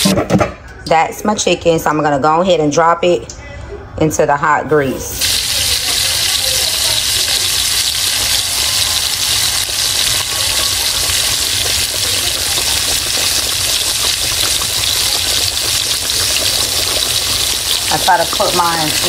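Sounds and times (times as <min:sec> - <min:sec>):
chicken deep-frying in oil: 0:05.2 - 0:19.0.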